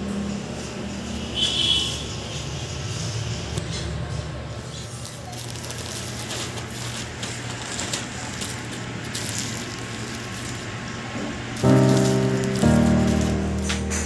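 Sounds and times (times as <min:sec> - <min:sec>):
bubble wrap crinkling: 0:04.8 - 0:10.9, 0:11.6 - 0:14.0.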